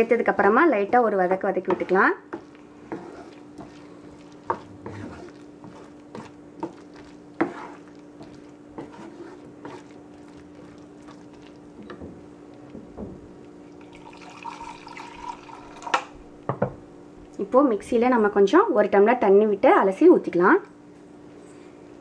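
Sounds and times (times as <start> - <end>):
spoon stirring wet squelching: 0.0 - 15.6
steady low hum: 0.0 - 19.7.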